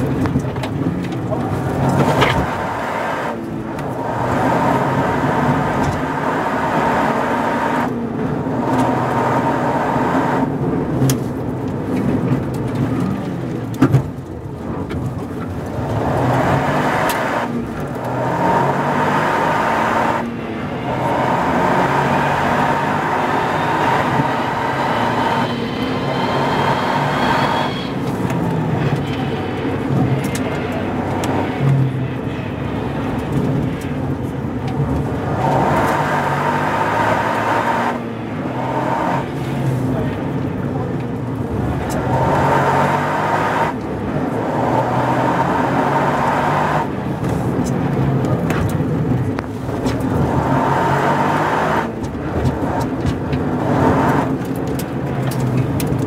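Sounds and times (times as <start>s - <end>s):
car engine accelerating: 0.0s - 56.0s
high whine rising in pitch: 18.3s - 29.3s.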